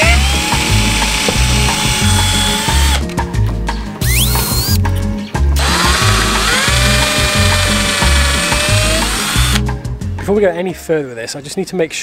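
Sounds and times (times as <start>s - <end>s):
power drill whining: 0.0s - 3.1s, 4.0s - 4.8s, 5.6s - 9.6s
background music with steady beat: 0.0s - 12.0s.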